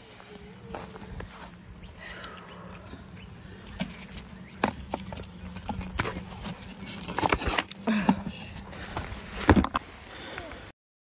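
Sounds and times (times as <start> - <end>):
footsteps: 0.0 - 1.6
steady low hum: 0.0 - 10.7.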